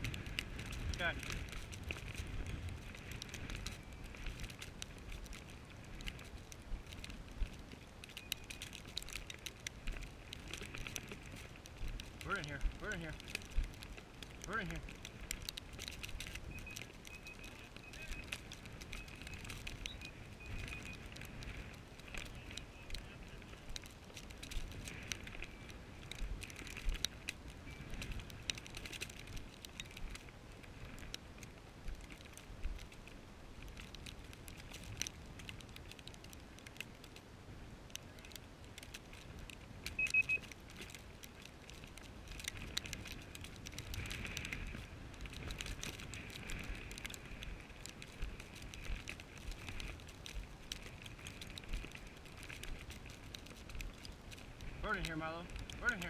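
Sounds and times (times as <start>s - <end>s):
short high beep: 40.0s - 40.4s.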